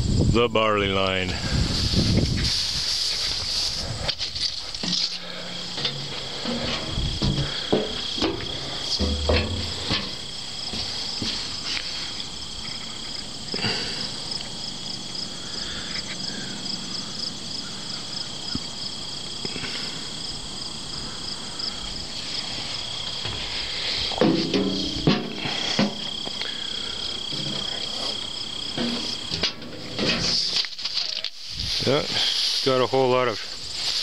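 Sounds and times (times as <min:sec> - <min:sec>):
crickets chirping: 0:00.0 - 0:34.0
handling knocks: 0:04.8 - 0:11.7, 0:23.2 - 0:26.1, 0:27.3 - 0:30.6.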